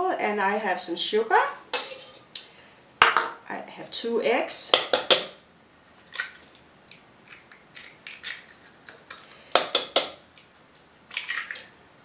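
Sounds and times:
eggshells cracking and clicking: 6.2s - 11.5s.

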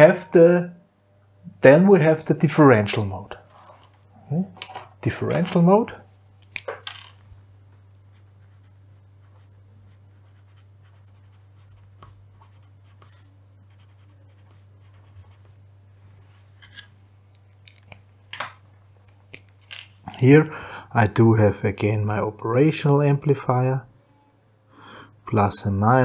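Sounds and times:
steady low hum: 0.0s - 26.0s
pen scratching on paper: 8.1s - 15.4s.

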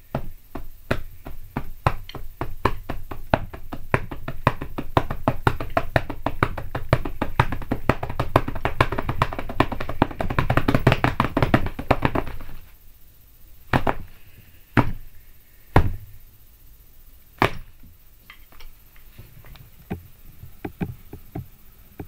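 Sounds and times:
drumsticks beating on bed and pillows: 0.0s - 12.6s, 13.7s - 14.1s, 14.7s - 15.1s, 15.7s - 16.1s, 17.4s - 17.9s, 19.9s - 22.0s.

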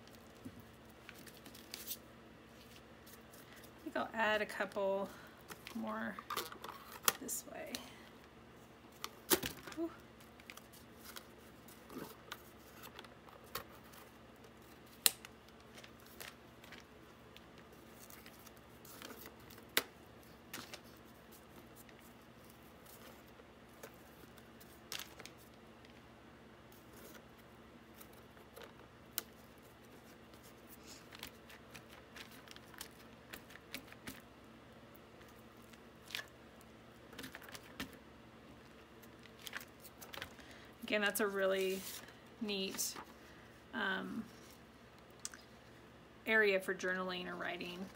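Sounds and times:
cardboard rustling: 41.7s - 42.1s.

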